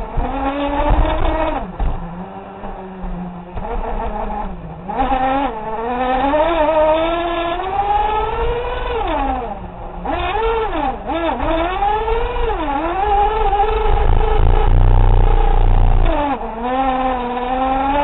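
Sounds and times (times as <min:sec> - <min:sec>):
rc car motor revving: 0:10.3 - 0:18.0.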